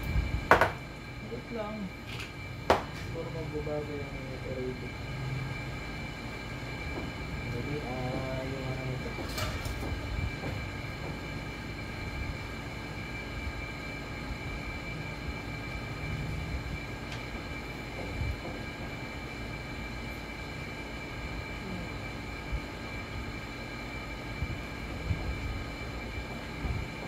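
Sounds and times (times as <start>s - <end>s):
high-pitched whine: 0.0s - 27.0s
mechanical hum and rumble: 0.0s - 27.0s.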